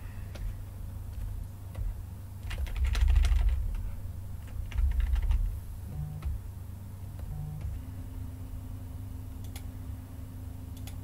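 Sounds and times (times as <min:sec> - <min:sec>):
keyboard keys clicking: 0:00.3 - 0:03.8, 0:04.4 - 0:05.5.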